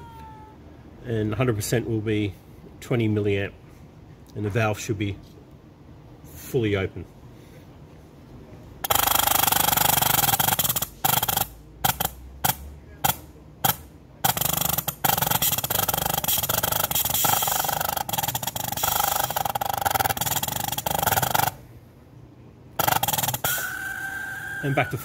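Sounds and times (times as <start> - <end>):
compressed air hissing: 15.0 - 21.4, 22.8 - 24.3.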